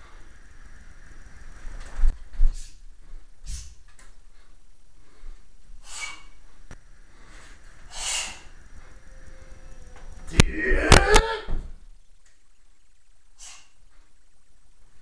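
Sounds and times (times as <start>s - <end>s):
person exhaling forcefully: 3.4s - 3.8s, 5.8s - 6.4s, 7.2s - 8.6s.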